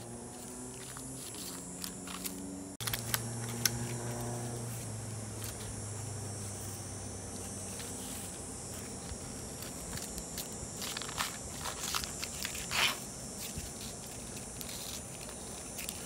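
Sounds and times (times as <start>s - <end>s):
puppy chewing dry leaves: 0.0s - 6.4s
low background hum: 0.0s - 16.0s.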